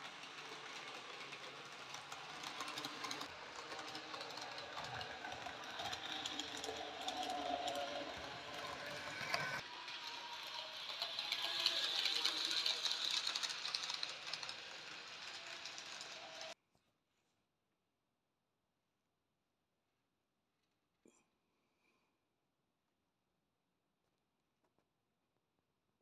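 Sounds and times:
model train wheels clicking: 0.0 - 16.6.

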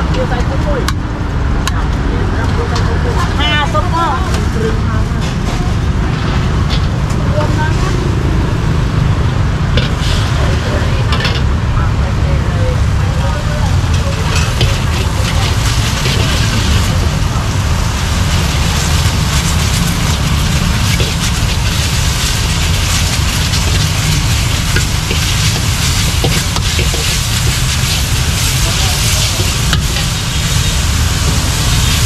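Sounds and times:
steady low rumble: 0.0 - 32.0
greens sizzling in a wok: 13.4 - 32.0
tongs clinking and scraping pan: 13.8 - 17.2, 18.4 - 32.0.

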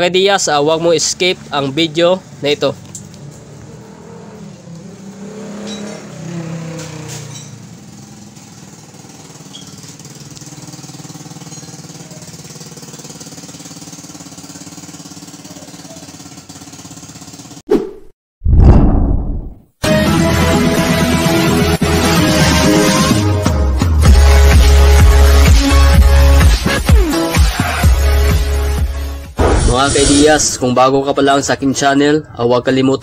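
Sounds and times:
engine idling: 7.6 - 17.6.

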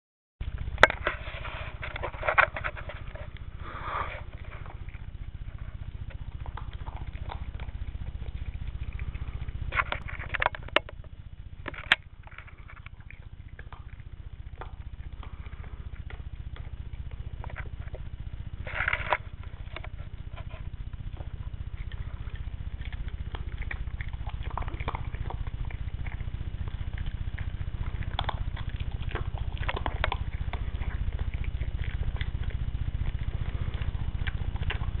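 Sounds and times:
dog crunching dry kibble: 0.4 - 35.0
steady low hum: 0.4 - 35.0.

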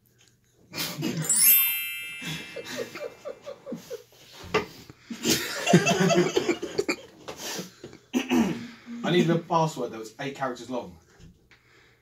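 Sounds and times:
bright chime: 1.2 - 3.8
men laughing: 2.2 - 4.4, 5.1 - 7.5.

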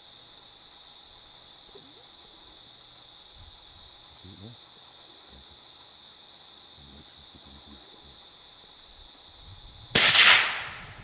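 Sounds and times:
high drone of insects: 0.0 - 11.0
rifle shot: 9.9 - 11.0.

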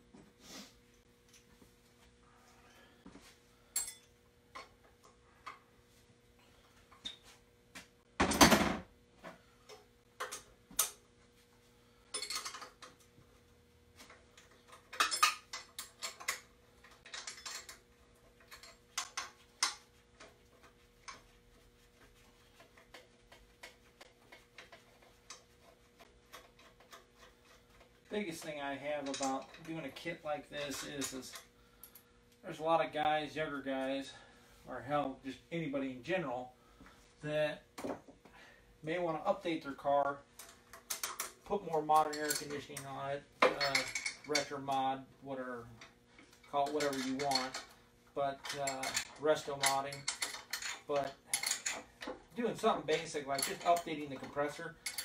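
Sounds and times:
faint steady hum: 0.0 - 55.0
wrench and metal brackets clinking: 12.1 - 13.0, 14.1 - 20.4, 28.2 - 31.5, 40.4 - 44.7, 45.8 - 55.0.

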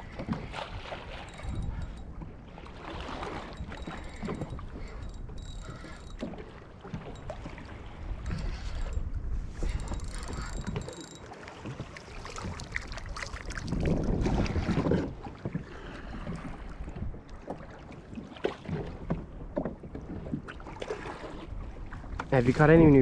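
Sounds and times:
wind buffeting microphone: 0.0 - 17.4
water sloshing against kayak hull: 0.0 - 22.7
small knocks and ticks: 1.3 - 2.1, 3.5 - 6.4, 8.2 - 11.8.

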